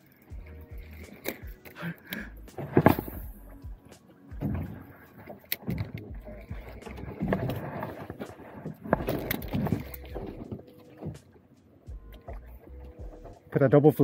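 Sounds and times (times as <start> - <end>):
fishing tackle knocking and rattling: 2.4 - 13.5.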